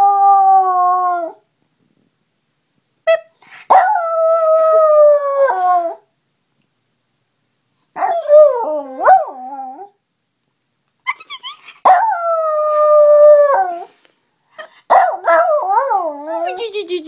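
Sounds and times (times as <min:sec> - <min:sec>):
dog howling: 0:08.0 - 0:09.9.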